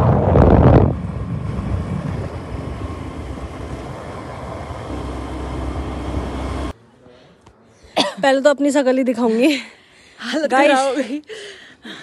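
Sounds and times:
wind rushing over microphone: 0.0 - 6.4
vehicle engine and road rumble: 0.0 - 6.8.

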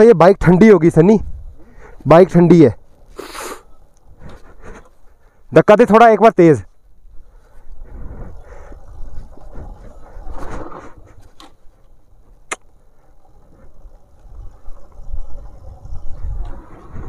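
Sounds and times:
wind on microphone: 1.2 - 1.8, 13.3 - 17.0.

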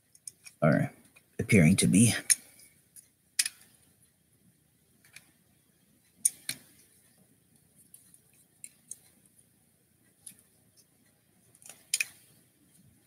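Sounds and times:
plastic clicks and snaps: 3.0 - 3.8, 6.2 - 6.8, 11.5 - 12.4.

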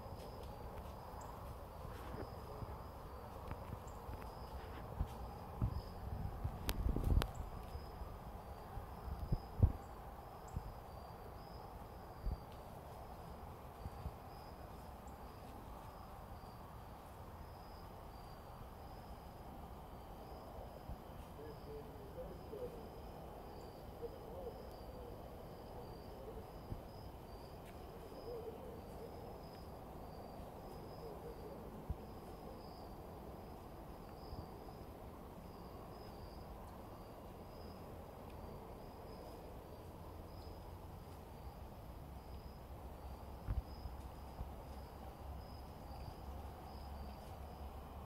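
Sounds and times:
insects chirping: 0.0 - 48.0
owl hooting: 20.0 - 36.3.

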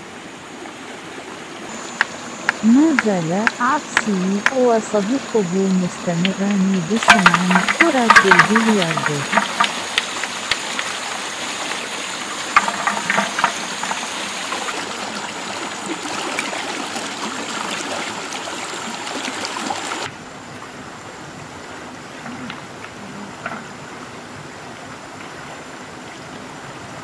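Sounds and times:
stream running over rocks: 0.0 - 27.0
sharp knocks: 6.2 - 10.9, 12.5 - 14.4.

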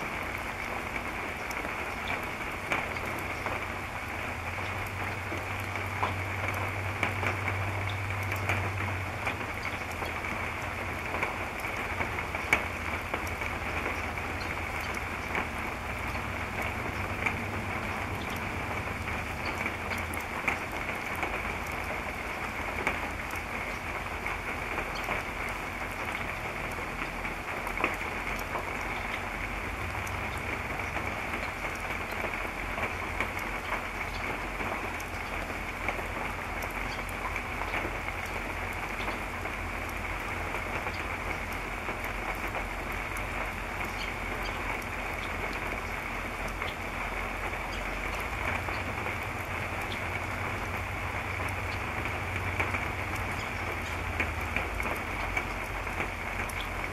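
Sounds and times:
raindrop ticks: 0.0 - 56.9
steady rain: 0.0 - 56.9.

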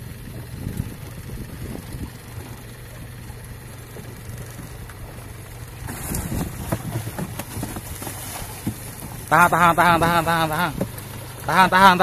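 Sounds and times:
boat engine humming: 0.0 - 12.0
irregular knocks and clatter: 6.0 - 9.3.

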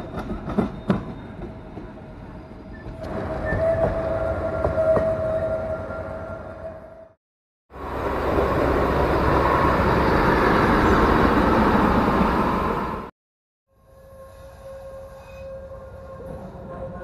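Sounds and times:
train rumbling across bridge: 0.0 - 6.7, 7.7 - 13.1
train passing: 7.7 - 13.1.

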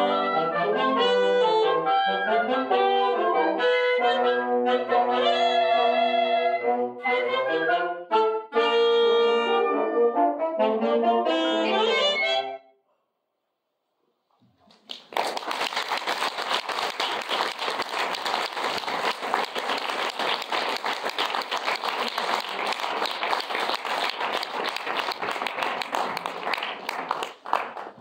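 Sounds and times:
audience applauding: 14.5 - 28.0.

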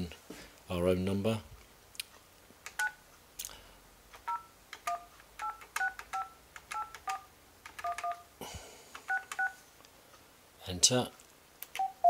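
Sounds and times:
phone keypad clicks: 4.3 - 8.2, 9.0 - 9.5
two-tone keypad beeps: 7.8 - 8.2.

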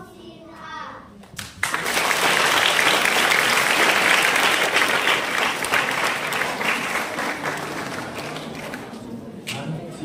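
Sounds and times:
audience applauding: 1.5 - 9.2.

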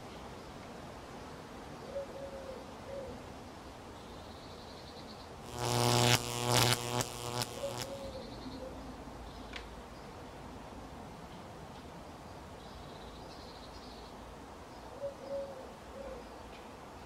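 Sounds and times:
pigeon cooing: 1.9 - 3.2, 7.6 - 8.8, 15.0 - 16.2
insect buzzing close by: 5.4 - 8.2.

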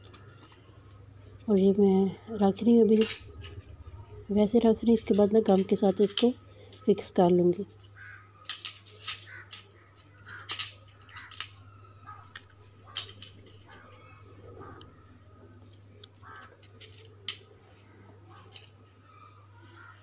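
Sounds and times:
low steady hum: 0.0 - 20.0
plastic spoons clicking and tapping: 5.1 - 14.1.

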